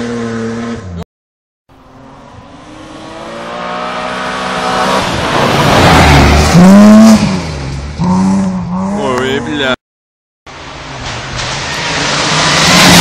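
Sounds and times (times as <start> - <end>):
rally car engine revving: 1.9 - 9.8, 11.5 - 13.0.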